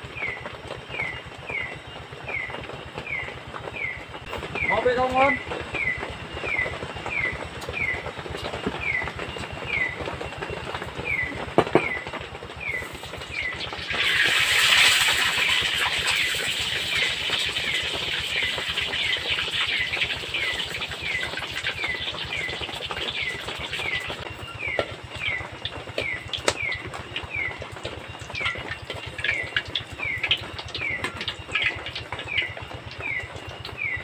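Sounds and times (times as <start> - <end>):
oil sizzling in a wok: 12.8 - 24.2.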